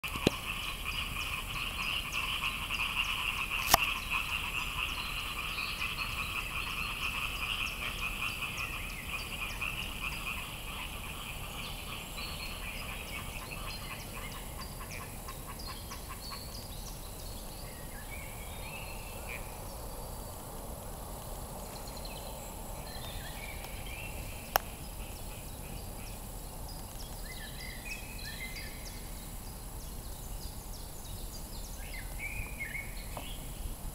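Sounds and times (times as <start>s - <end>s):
chorus of frogs croaking: 0.0s - 33.9s
sharp clicks: 3.6s - 3.9s.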